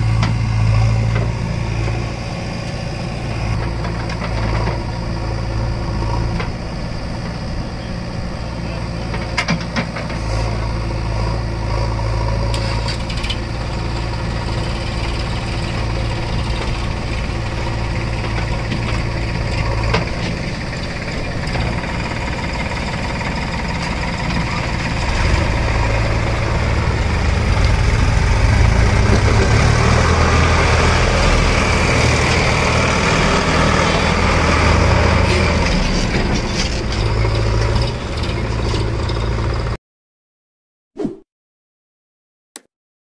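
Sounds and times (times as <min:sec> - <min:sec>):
diesel engines running: 0:00.0 - 0:39.8.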